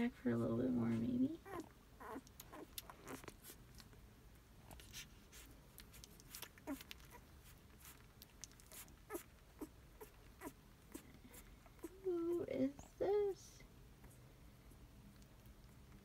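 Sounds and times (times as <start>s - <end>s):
puppies suckling: 0.9s - 12.4s
puppies squeaking: 1.4s - 3.6s, 5.9s - 8.0s, 8.6s - 11.1s.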